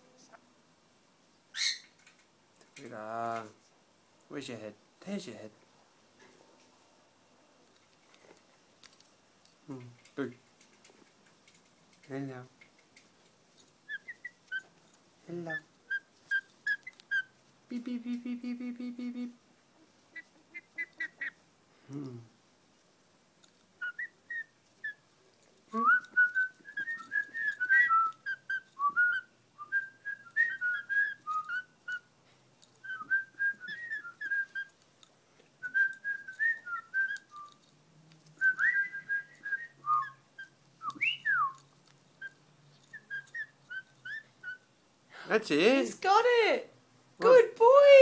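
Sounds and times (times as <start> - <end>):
faint clicks: 1.9 - 2.9, 7.6 - 13.8.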